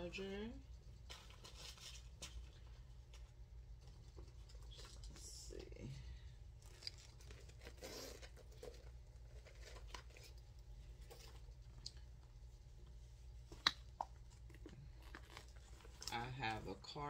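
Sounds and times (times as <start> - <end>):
faint rustling of small items: 0.0 - 17.0
low steady hum: 0.0 - 17.0.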